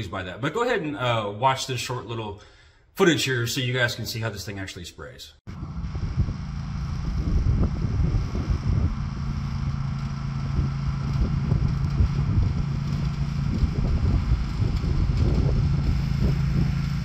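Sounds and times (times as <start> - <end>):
riding mower engine running: 5.5 - 17.0.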